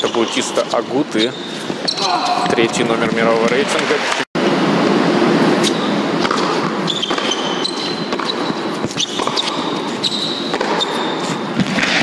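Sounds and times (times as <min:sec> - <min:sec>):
shoes squeaking on court: 0:00.0 - 0:03.6, 0:05.4 - 0:12.0
racket hitting tennis ball: 0:05.4 - 0:12.0.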